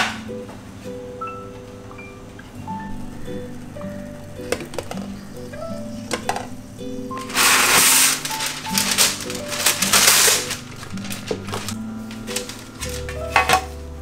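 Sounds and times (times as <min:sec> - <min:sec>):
soft background music: 0:00.0 - 0:14.0
plastic bag crinkling: 0:04.4 - 0:13.8.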